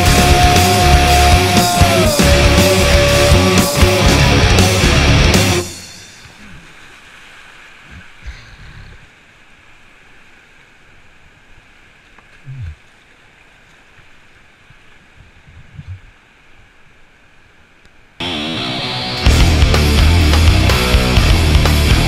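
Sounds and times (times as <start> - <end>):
dull low thumps: 0.0 - 5.6, 19.3 - 22.0
rushing whitewater: 0.0 - 15.4.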